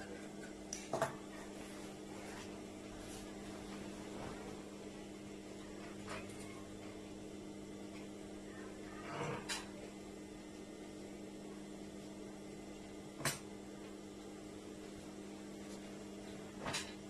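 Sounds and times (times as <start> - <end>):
low electric hum: 0.0 - 17.0.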